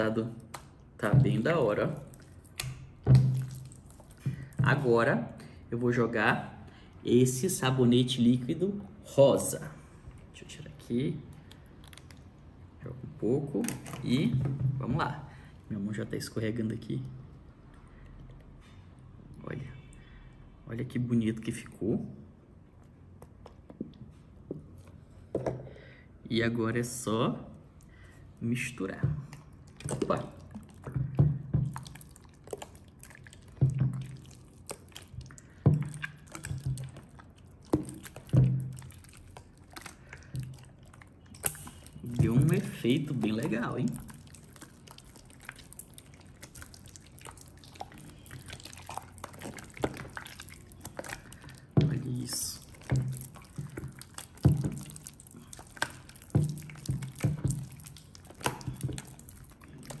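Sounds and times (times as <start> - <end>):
slime squelching and popping: 0.0 - 8.7, 10.6 - 15.5, 27.5 - 60.0.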